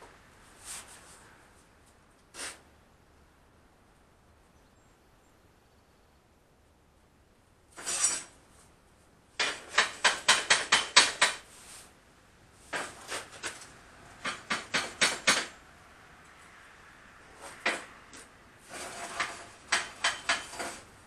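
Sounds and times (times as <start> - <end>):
metal clatter: 7.8 - 8.4, 17.6 - 20.9
hammer tapping on steel: 9.4 - 11.4.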